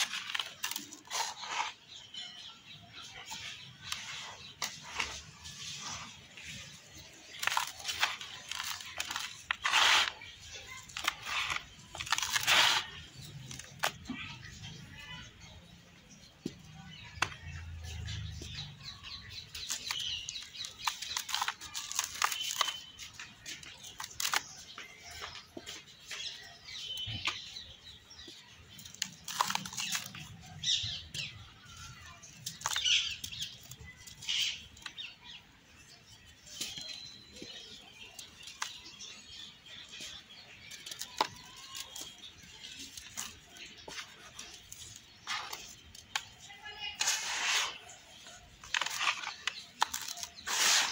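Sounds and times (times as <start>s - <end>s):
soil clumps crumbling by hand: 0.0s - 2.4s, 3.0s - 15.4s, 16.2s - 50.9s
sharp crunches: 7.2s - 14.1s, 19.4s - 25.3s.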